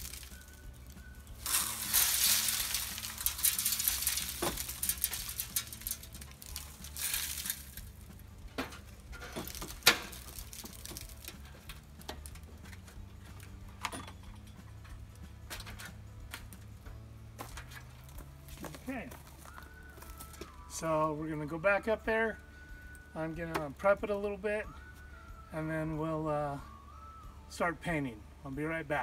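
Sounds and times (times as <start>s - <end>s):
birdseed pouring: 0.0s - 8.0s, 9.4s - 11.5s.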